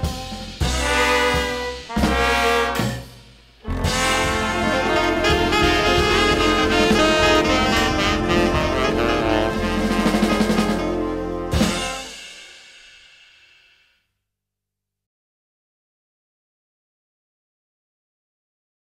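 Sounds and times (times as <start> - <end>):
jazz horn section: 0.0 - 12.4
drum kit: 0.0 - 13.8.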